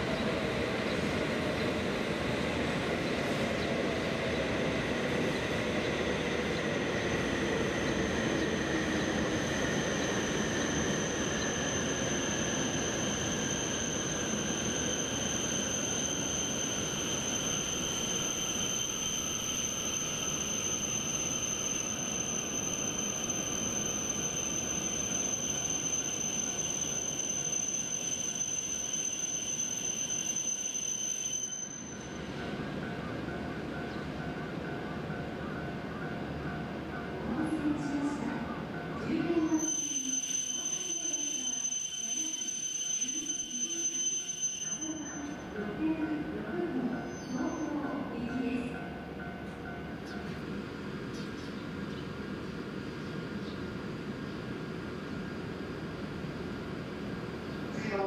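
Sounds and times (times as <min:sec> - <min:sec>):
high-pitched train squeal: 0:02.9 - 0:33.1, 0:37.4 - 0:50.4.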